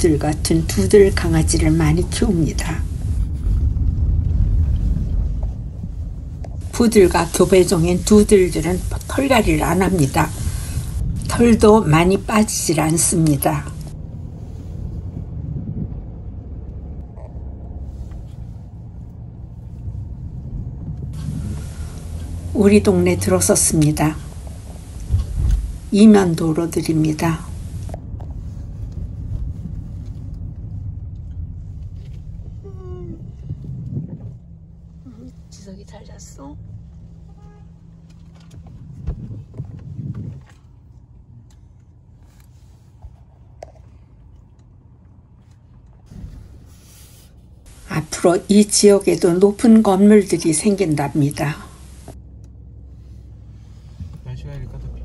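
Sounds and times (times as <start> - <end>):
car engine and road rumble: 0.0 - 55.0
hiss: 6.6 - 11.5, 21.2 - 28.0, 46.1 - 49.0, 50.6 - 52.2.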